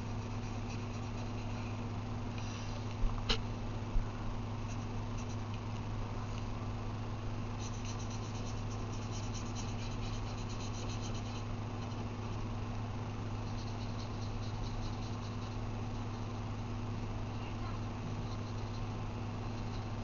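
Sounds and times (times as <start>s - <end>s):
marker scribbling on paper: 0.0s - 1.7s, 4.7s - 5.4s, 7.6s - 12.5s, 13.4s - 16.4s, 18.2s - 20.0s
low electrical hum: 0.0s - 20.0s.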